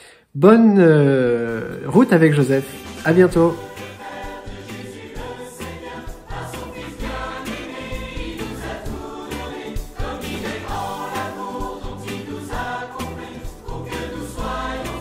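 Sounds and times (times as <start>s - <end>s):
choir singing: 3.5s - 15.0s.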